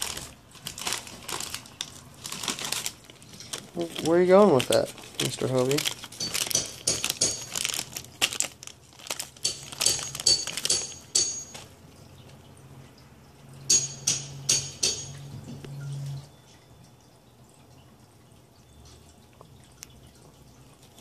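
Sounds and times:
plastic snack bag crinkling: 0.0s - 11.8s.

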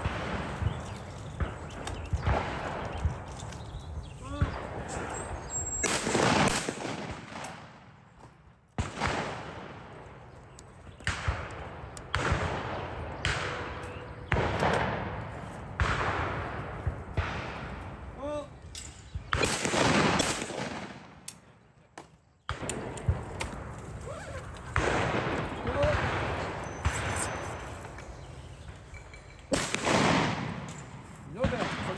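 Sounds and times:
shotgun shots echoing: 0.0s - 3.2s, 4.3s - 8.0s, 8.8s - 10.2s, 11.0s - 18.2s, 19.3s - 21.5s, 24.6s - 28.8s, 29.5s - 31.9s.

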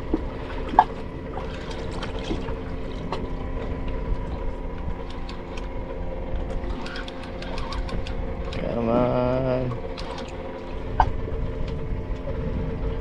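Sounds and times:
boat engine idling: 0.0s - 13.0s.

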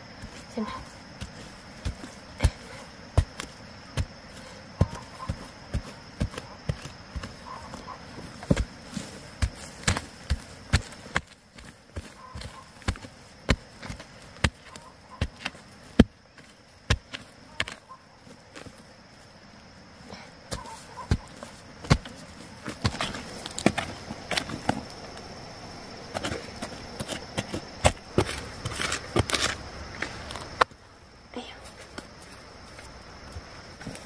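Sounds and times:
hand tool chopping: 1.2s - 8.8s, 9.4s - 17.8s, 20.5s - 24.9s, 26.1s - 30.2s
rustling: 20.5s - 30.7s.

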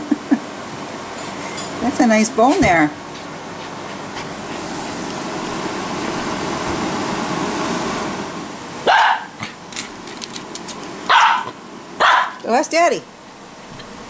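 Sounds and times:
small dog barking: 8.8s - 9.6s, 11.1s - 12.5s.

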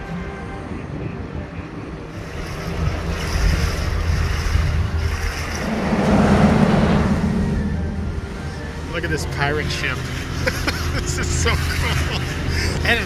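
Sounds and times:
boat engine hum: 0.1s - 13.0s
wind buffeting microphone: 0.7s - 9.6s.

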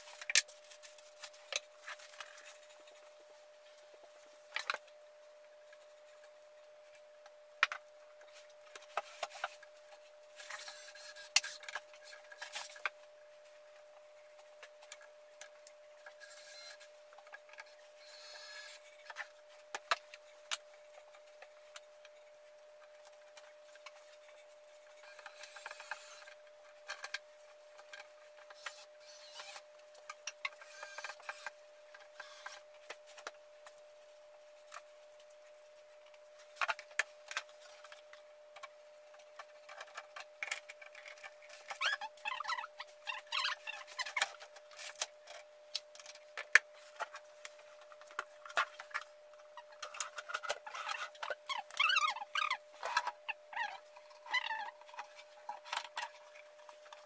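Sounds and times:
faint steady hum: 0.0s - 57.0s
clicks and knocks of hands-on work: 36.1s - 57.0s.

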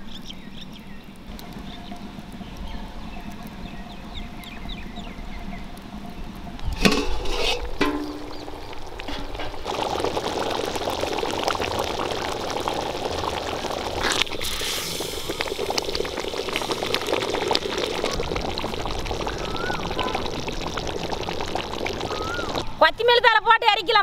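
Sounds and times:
thick curry bubbling in a pot: 6.6s - 22.7s
ladle stirring: 6.8s - 9.8s.

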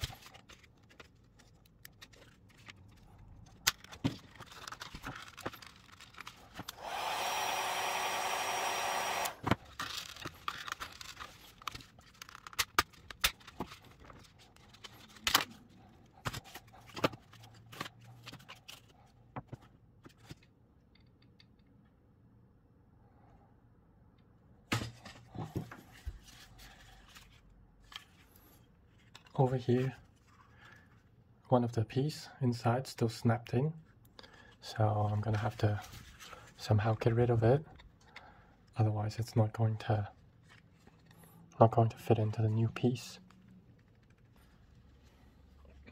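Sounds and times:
heat gun blowing: 6.6s - 9.5s.

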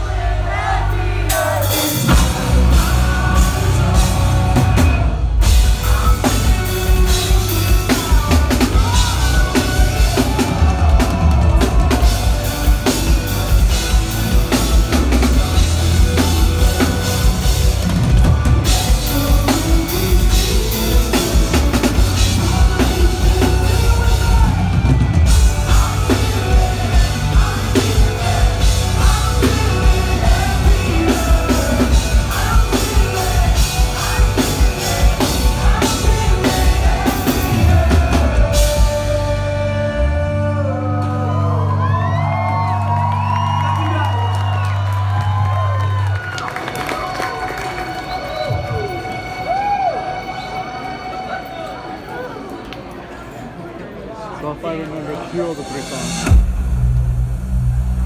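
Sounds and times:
loud drum kit beat: 0.0s - 41.3s, 55.6s - 58.0s
rock band playing live: 0.0s - 52.4s, 55.6s - 58.0s.

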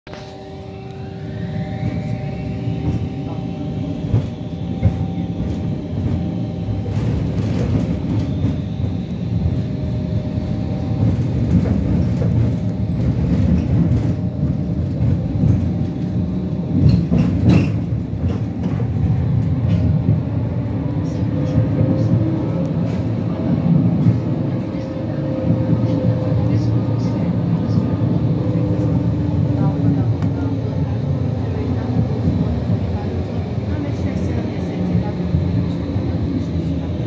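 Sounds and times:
tram drive whine: 0.1s - 37.0s
tram wheels rumbling on rail: 0.1s - 37.0s.

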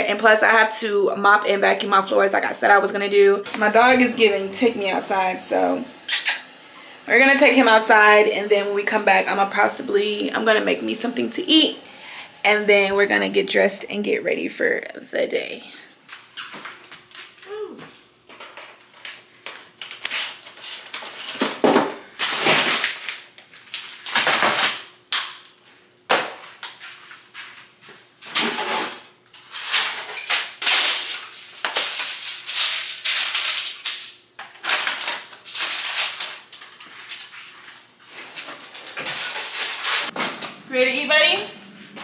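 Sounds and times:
plastic bags crinkling: 30.4s - 40.2s.

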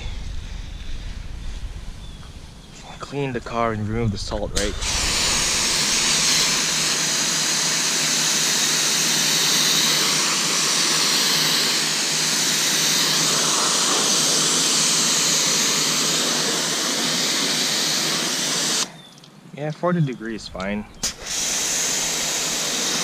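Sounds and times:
pressure washer spraying water: 4.6s - 18.9s, 21.0s - 23.0s.

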